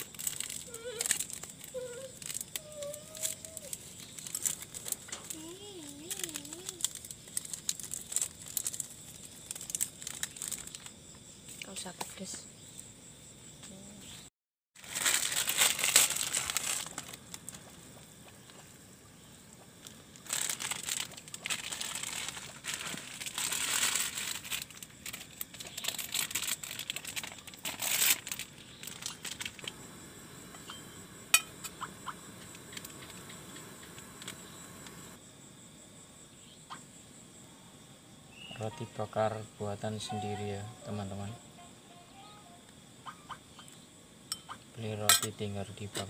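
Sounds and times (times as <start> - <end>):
plastic food packets crinkling: 0.0 - 11.0, 14.8 - 17.8, 19.7 - 29.8.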